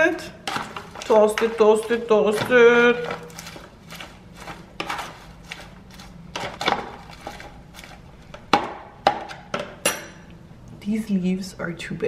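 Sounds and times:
salad leaves rustling: 0.5s - 8.2s.

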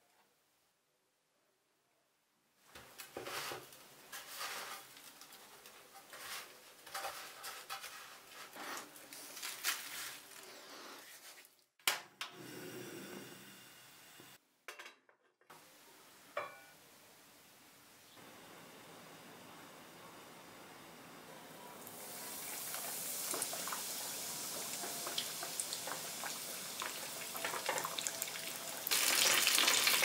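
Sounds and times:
crumbs rustling and scraping: 2.8s - 11.5s
faint steady hiss: 15.5s - 30.0s.

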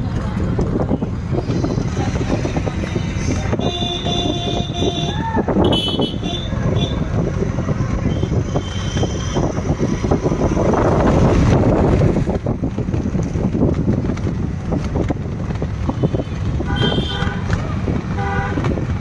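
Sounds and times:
traffic on wet road: 0.0s - 19.0s
vehicle horns tooting: 3.5s - 7.2s, 7.9s - 9.6s, 15.9s - 18.8s.

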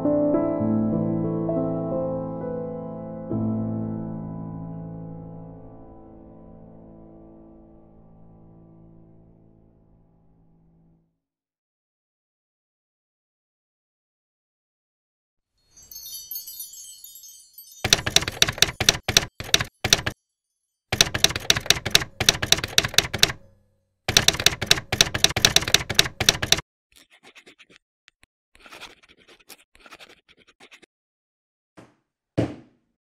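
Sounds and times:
typewriter keys clacking: 17.8s - 20.2s, 20.9s - 23.5s, 24.1s - 26.6s
faint scratching: 27.0s - 27.8s.

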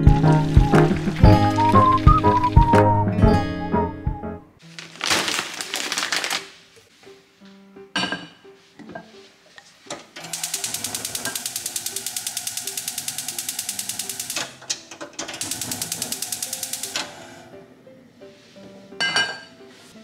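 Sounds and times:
gas hob igniter clicking: 10.2s - 17.2s.

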